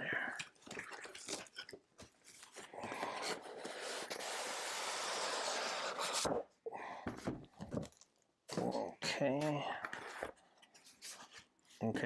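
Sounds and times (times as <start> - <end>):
cardboard sleeve sliding off box: 3.1 - 6.4.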